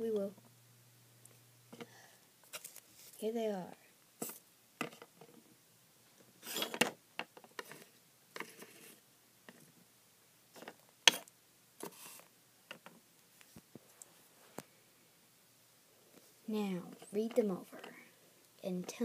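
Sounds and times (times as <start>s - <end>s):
paper rustle: 2.5s - 3.2s.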